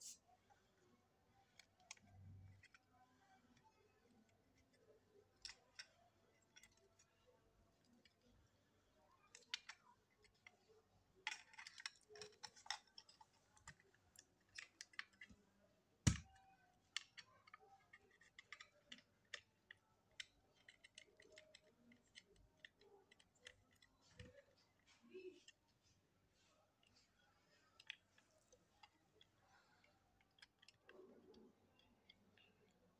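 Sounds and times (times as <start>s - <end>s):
plastic and metal parts clicking: 0.7s - 32.9s.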